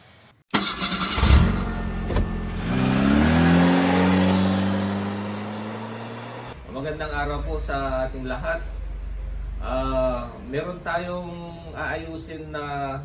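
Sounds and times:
drilling rig engine revving: 0.5 - 6.6.

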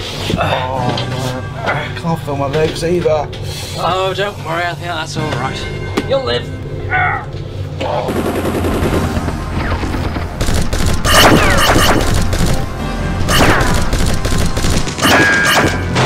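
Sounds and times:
rapid gunfire: 8.1 - 16.0.

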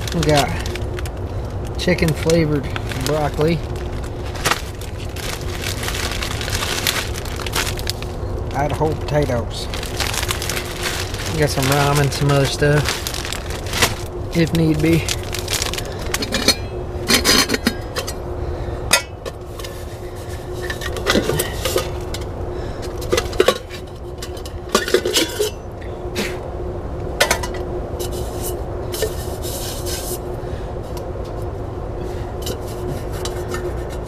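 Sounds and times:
metal pots clinking and scraping: 9.9 - 18.2, 18.9 - 25.7, 27.2 - 30.2, 32.0 - 34.0.

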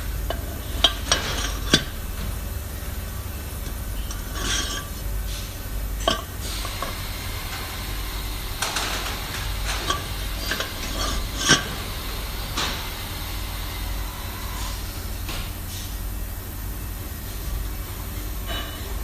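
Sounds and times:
steady low hum: 0.0 - 19.0
metal housings knocking together: 8.6 - 11.8.

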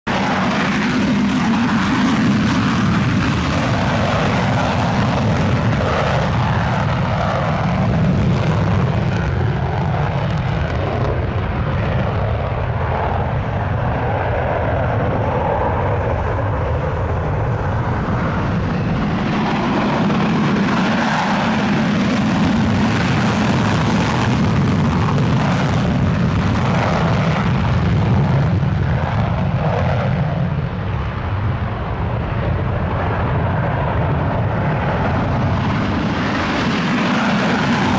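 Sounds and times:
jet engines roaring with crackle: 0.0 - 37.9.

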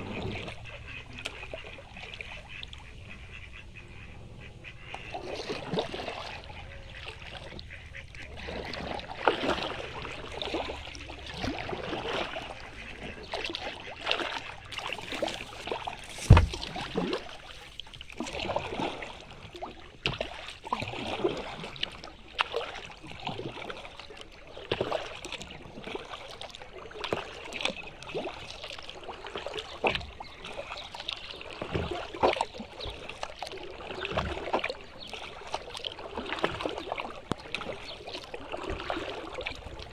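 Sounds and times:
paddle strokes splashing water: 0.0 - 4.1, 4.7 - 39.9
ducks quacking: 0.0 - 9.0, 10.0 - 19.1
sharp loud knock: 16.1 - 16.6.

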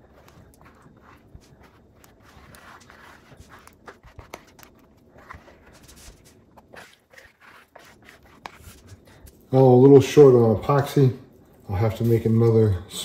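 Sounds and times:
plastic spreader scraping epoxy: 0.0 - 9.3.

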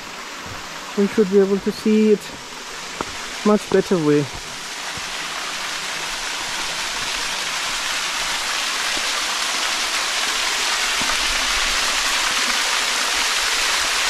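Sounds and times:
waterfall splashing into pool: 0.0 - 14.0.

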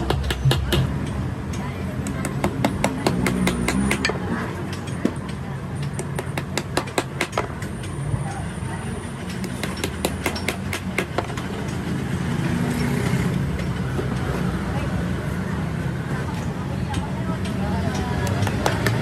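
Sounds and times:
sharp taps and knocks: 0.0 - 8.0, 16.9 - 19.0.

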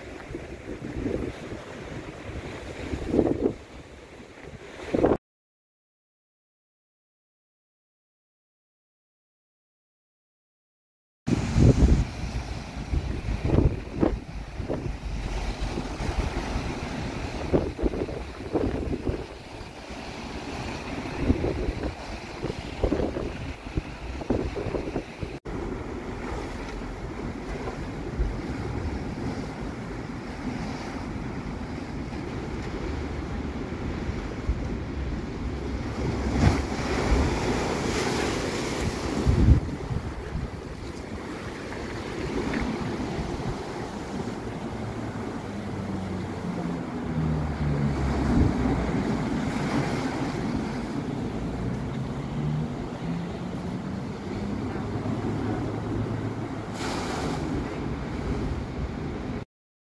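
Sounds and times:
wind buffeting microphone: 0.0 - 3.8, 11.3 - 56.4
rough sea surf on slipway: 0.0 - 5.2, 11.3 - 59.4
sea waves breaking on gravel: 11.4 - 25.0.

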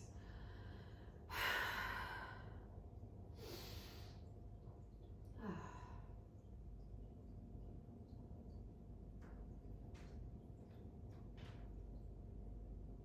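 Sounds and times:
woman breathing: 0.0 - 2.8, 3.4 - 4.3.

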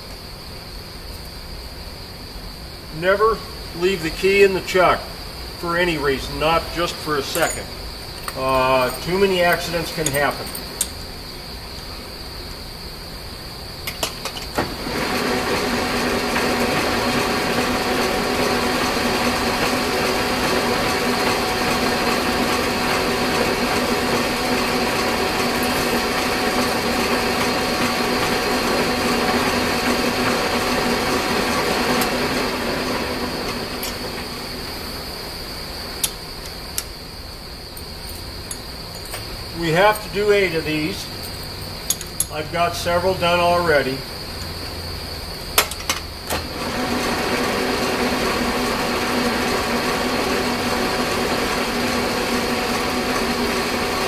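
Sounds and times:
metal lathe motor humming: 6.2 - 11.0, 14.2 - 35.2, 45.7 - 54.0.

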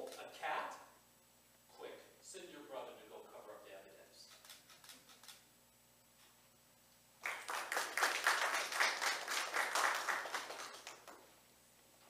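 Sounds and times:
audience applauding: 7.2 - 11.2.

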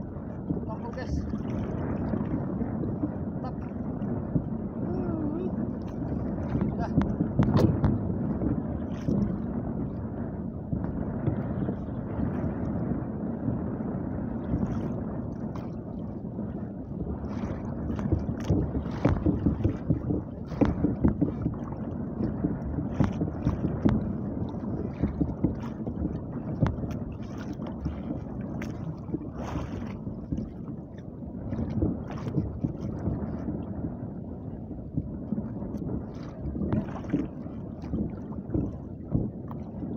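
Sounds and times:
water slapping against canoe hull: 0.0 - 13.4, 14.4 - 39.9
wind buffeting microphone: 0.0 - 39.9
short knocks and splashes: 5.8 - 8.1, 17.3 - 22.3, 22.9 - 30.7, 36.1 - 39.9.

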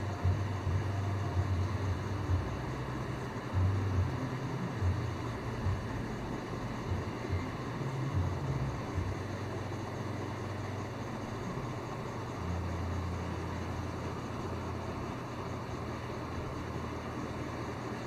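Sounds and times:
even hiss: 0.0 - 18.0
low background hum: 0.0 - 18.0.

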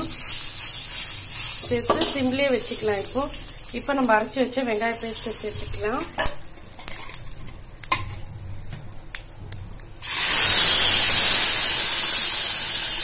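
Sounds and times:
loud hiss of sizzling: 0.0 - 4.1, 10.0 - 13.0
spices sizzling in hot oil: 0.0 - 13.0.

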